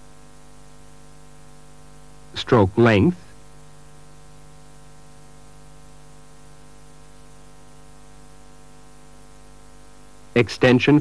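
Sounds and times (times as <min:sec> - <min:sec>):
electrical hum with hiss: 0:00.0 - 0:11.0.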